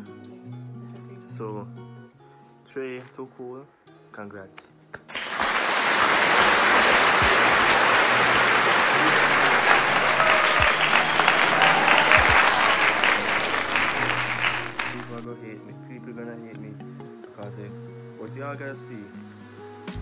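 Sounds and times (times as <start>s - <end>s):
soft guitar music: 0.0s - 5.1s, 15.2s - 20.0s
crowd applause: 5.1s - 15.3s.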